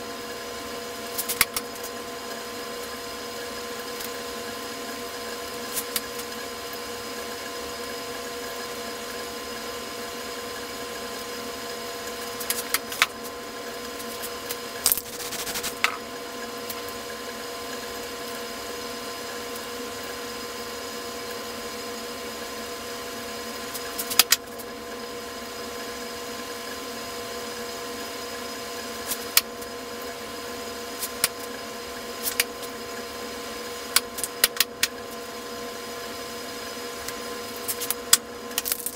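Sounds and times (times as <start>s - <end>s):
machine hum: 10.4s - 26.0s.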